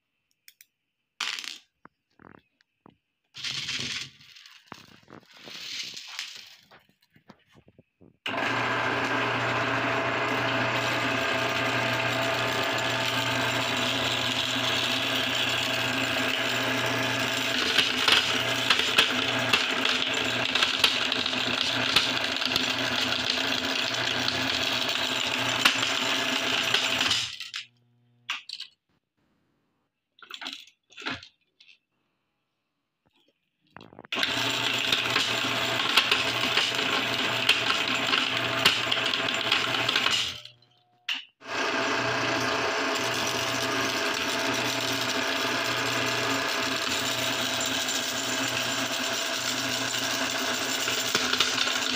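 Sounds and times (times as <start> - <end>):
glass marbles crushing: 3.4 - 7.0
meat grinder motor hum: 8.3 - 27.4, 34.2 - 40.5, 41.4 - 51.9.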